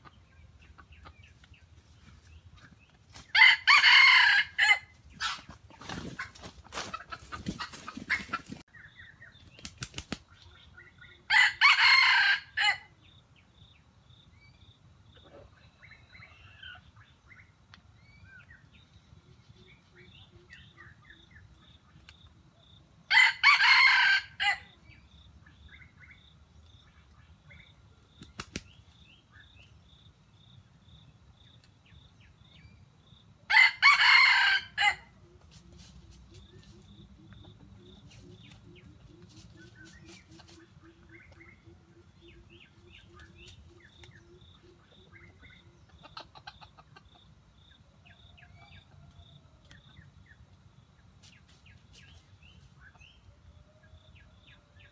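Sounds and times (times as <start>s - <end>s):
rooster crowing: 3.3s - 4.9s, 11.3s - 12.9s, 23.1s - 24.7s, 33.5s - 35.1s.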